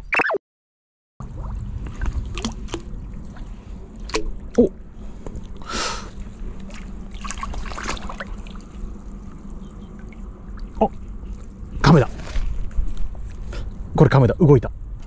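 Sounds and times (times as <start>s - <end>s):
water splash: 1.2s - 4.5s, 6.6s - 10.9s
water sloshing around legs: 1.2s - 13.5s.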